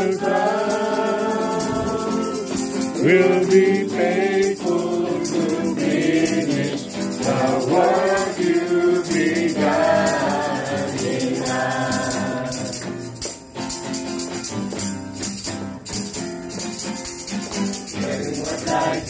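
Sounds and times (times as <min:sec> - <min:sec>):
person singing: 0:00.0 - 0:12.8
worship music instruments: 0:00.0 - 0:13.2, 0:17.9 - 0:19.0.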